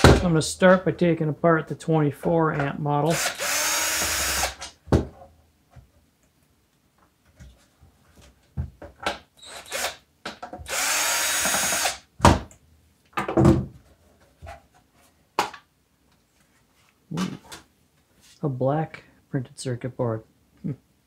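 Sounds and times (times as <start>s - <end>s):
cordless drill spinning screws: 3.1s - 4.6s, 9.4s - 10.0s, 10.6s - 12.0s.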